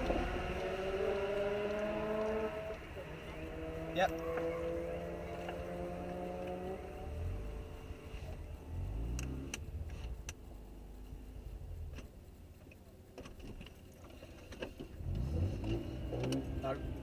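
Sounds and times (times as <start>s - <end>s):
rotary engine idling and revving: 0.0s - 17.0s.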